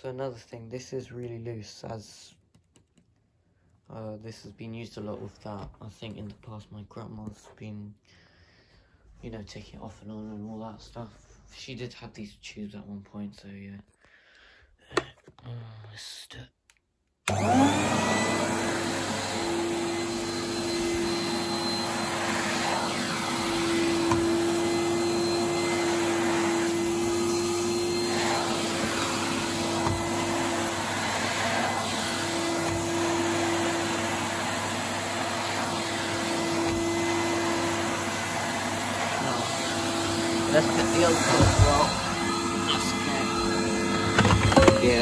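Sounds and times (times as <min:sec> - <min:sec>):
vacuum cleaner motor whining: 0:17.3 - 0:45.0
vacuum floor tool on carpet: 0:17.3 - 0:45.0.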